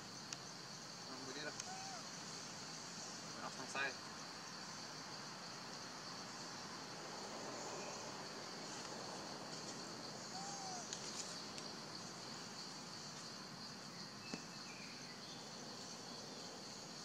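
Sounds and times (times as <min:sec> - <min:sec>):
insect chorus drone: 0:00.0 - 0:17.0.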